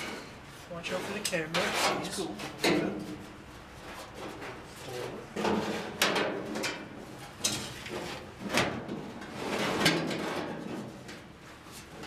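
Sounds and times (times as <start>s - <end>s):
sheet metal scraping and rattling: 0.9s - 3.2s, 5.4s - 11.2s.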